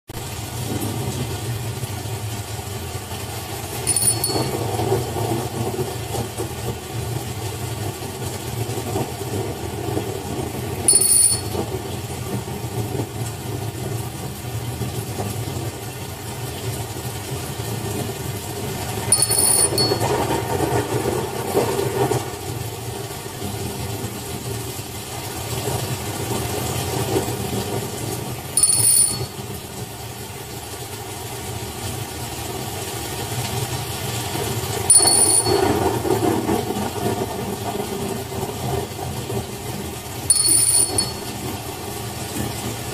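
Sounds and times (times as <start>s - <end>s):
small hand bell ringing: 3.9s - 4.7s, 10.9s - 11.6s, 19.1s - 20.2s, 28.6s - 29.4s, 34.9s - 35.8s, 40.3s - 41.4s.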